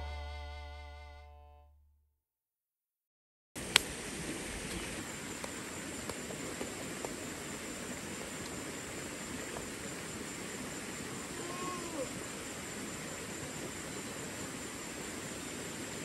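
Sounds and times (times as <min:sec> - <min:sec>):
shallow stream rushing: 0:03.6 - 0:16.0.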